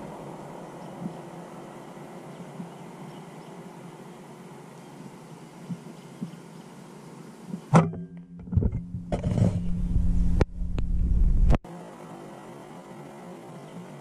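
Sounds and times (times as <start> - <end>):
handling rumble and knocking: 7.8 - 11.6.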